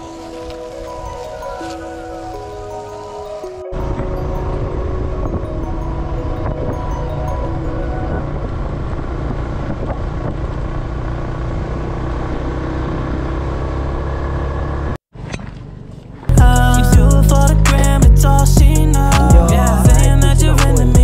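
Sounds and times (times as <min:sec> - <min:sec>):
hip hop music: 0:00.0 - 0:07.6, 0:16.3 - 0:21.0
road noise: 0:00.0 - 0:17.7
motorcycle engine running: 0:08.2 - 0:15.0.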